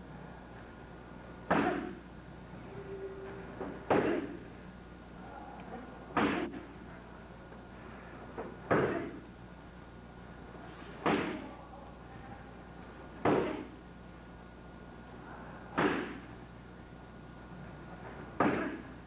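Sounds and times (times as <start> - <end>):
kicks smacking focus pads: 1.5 - 1.9, 6.2 - 6.6, 11.0 - 11.4, 13.2 - 13.7, 15.8 - 16.2, 18.4 - 18.8.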